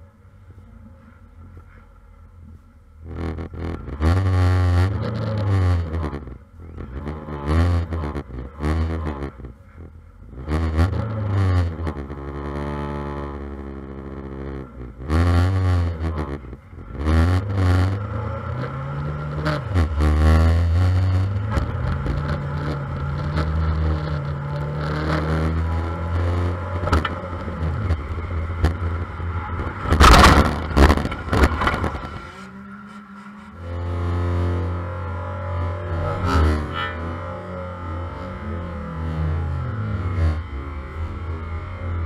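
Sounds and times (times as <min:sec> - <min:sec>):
race car engine revving: 0:03.0 - 0:42.0
loud crashing bangs: 0:29.8 - 0:32.3.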